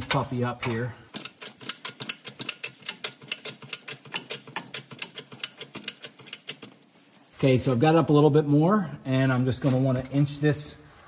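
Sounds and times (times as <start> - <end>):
transmission jack clicking: 1.1 - 6.8.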